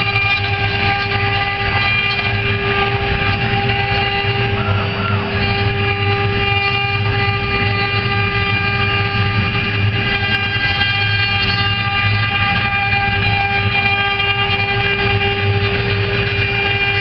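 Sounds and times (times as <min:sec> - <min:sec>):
router motors whining: 0:00.0 - 0:17.0.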